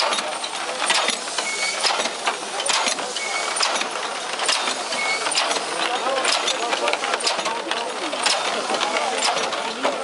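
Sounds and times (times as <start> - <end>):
steam engine chuffing: 0.0 - 10.0
steam hissing: 0.0 - 10.0
short high squeak: 1.4 - 1.9, 4.9 - 5.4.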